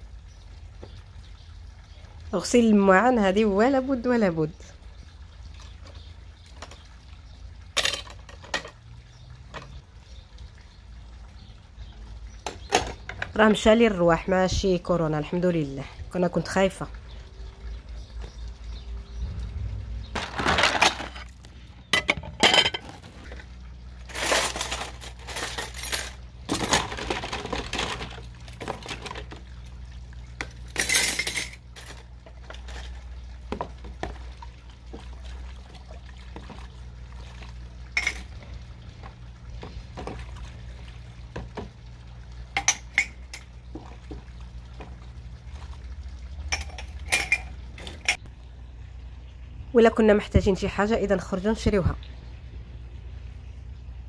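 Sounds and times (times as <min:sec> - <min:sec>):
water splashing and pouring: 0:15.4 - 0:48.3
dishes and cutlery clinking: 0:22.0 - 0:23.0, 0:46.5 - 0:48.2.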